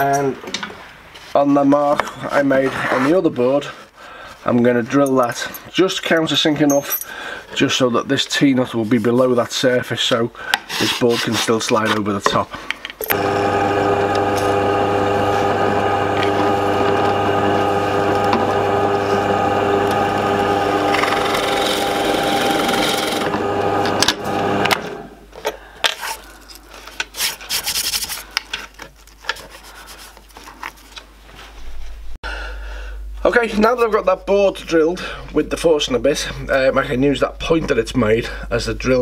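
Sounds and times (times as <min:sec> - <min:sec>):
drill press motor hum: 0:13.0 - 0:25.2
drill bit rasping wood: 0:13.1 - 0:25.1.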